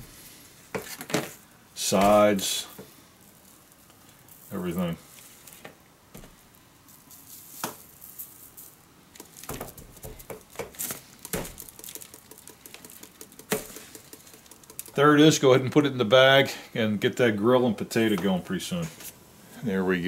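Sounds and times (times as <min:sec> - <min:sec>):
spice bottle shaking: 0:07.0 - 0:15.4
sharp clicks: 0:11.2 - 0:15.0.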